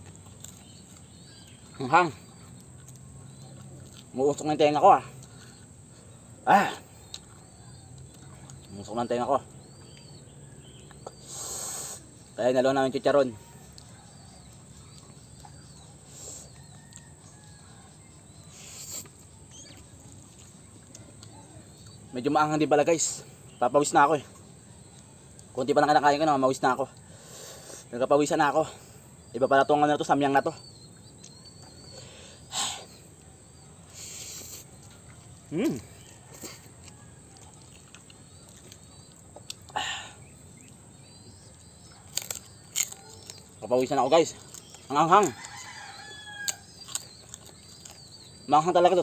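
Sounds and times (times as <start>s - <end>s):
faint birds chirping: 0.0s - 49.0s
breathy mouth sucking sound: 11.2s - 12.1s.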